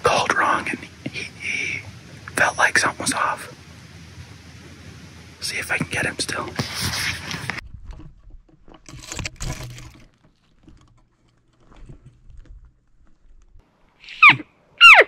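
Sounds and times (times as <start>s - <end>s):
rustling: 6.5s - 13.6s.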